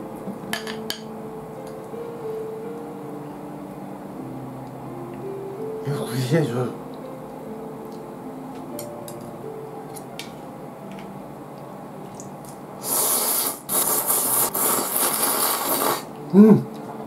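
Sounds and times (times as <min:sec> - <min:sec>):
noodles being slurped: 0:12.8 - 0:16.1.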